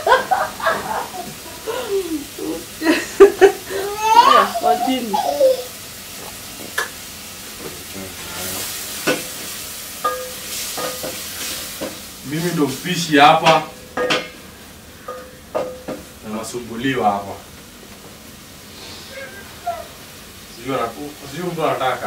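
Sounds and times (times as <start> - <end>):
sizzling hiss: 0.0 - 22.0
person speaking: 3.7 - 6.4.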